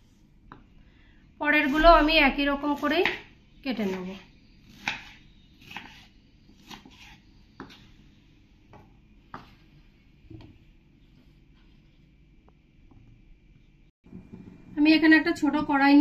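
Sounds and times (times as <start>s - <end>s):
knife chopping on wooden board: 2.8s - 4.0s, 4.6s - 7.9s.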